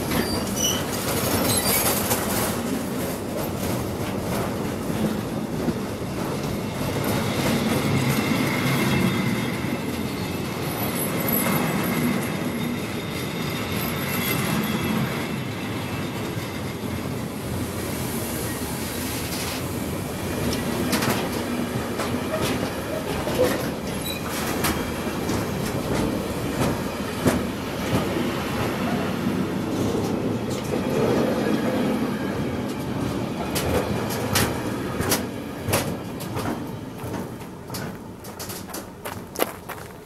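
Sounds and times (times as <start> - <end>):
freight wagons rolling on rails: 0.0 - 17.1, 20.4 - 31.3, 32.7 - 40.0
wheels clicking over rail joints: 33.5 - 40.0.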